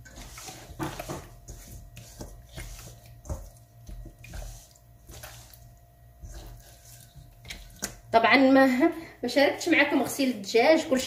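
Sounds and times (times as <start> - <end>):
hands rubbing wet chicken: 0.0 - 8.0.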